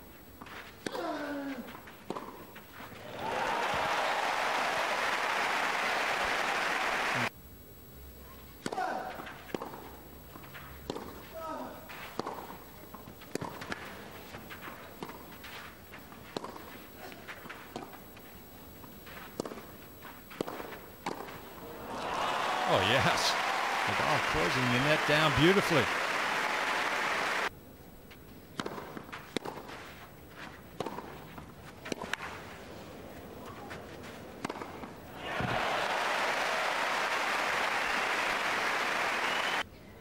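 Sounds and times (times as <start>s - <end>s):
shoes scuffing on clay: 0.0s - 3.1s, 10.3s - 21.6s, 28.1s - 35.0s
tennis ball bouncing: 1.7s - 2.4s, 10.9s - 11.2s, 12.2s - 13.8s, 15.0s - 15.3s, 16.3s - 16.7s, 19.4s - 19.7s, 20.3s - 21.4s, 28.6s - 29.8s, 30.8s - 32.2s, 34.4s - 35.6s
hushed crowd: 21.7s - 27.5s.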